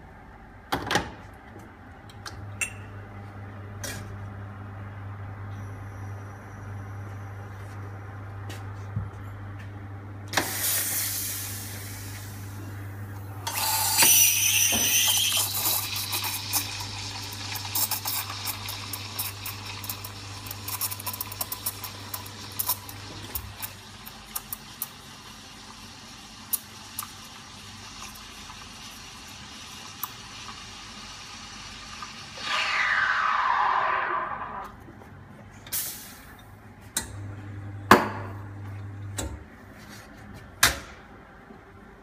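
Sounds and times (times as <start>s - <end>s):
espresso machine humming: 11.6s - 32.8s
milk crackling while steamed: 14.4s - 33.3s.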